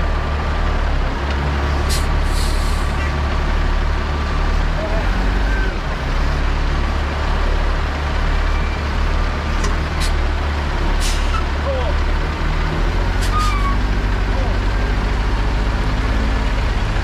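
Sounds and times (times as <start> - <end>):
diesel truck engine droning: 0.0 - 17.0
short hisses: 1.9 - 3.0.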